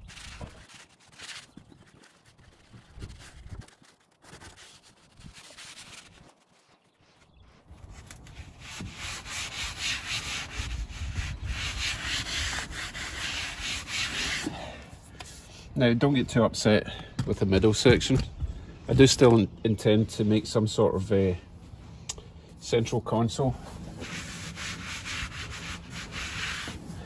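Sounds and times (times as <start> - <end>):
hand scrubbing carpet: 8.3 - 15.5, 23.6 - 27.0.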